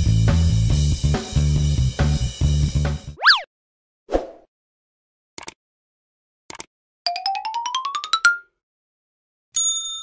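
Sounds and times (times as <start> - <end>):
short clicks: 6.5 - 6.7
bell ding: 9.6 - 10.0.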